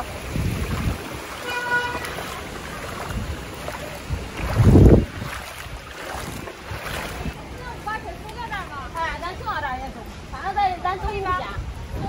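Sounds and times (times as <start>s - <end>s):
loud low splash: 0.0s - 7.4s
wading through deep water: 0.0s - 9.4s.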